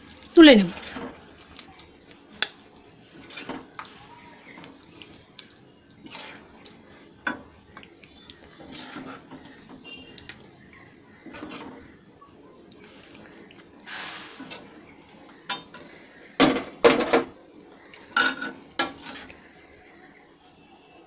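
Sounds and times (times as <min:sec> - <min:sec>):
metal spoon scraping a pot: 0:03.2 - 0:04.7, 0:06.0 - 0:06.6, 0:08.5 - 0:09.8, 0:11.2 - 0:11.8, 0:18.1 - 0:19.4.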